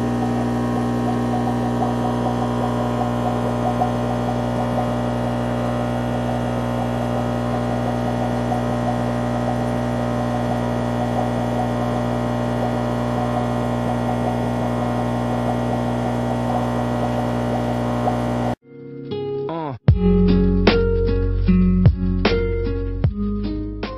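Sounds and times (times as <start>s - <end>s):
aquarium air pump humming: 0.0s - 18.6s.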